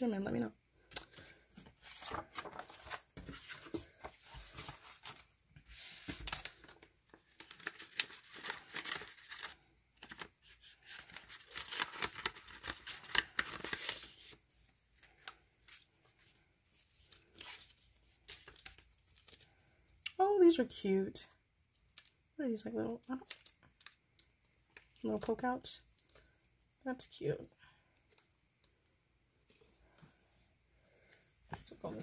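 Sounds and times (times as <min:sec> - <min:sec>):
paper and plastic crinkling: 0:01.0 - 0:19.6.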